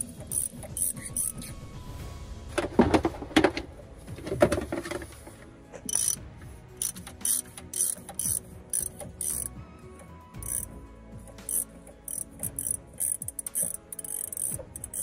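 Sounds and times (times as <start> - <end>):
ratchet pawl clicking: 0.0 - 1.5, 5.9 - 6.2, 6.8 - 10.7, 11.3 - 15.0.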